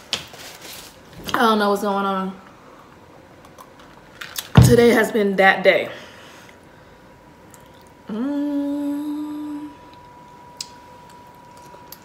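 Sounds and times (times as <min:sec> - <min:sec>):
woman humming mmm: 0:08.0 - 0:10.0.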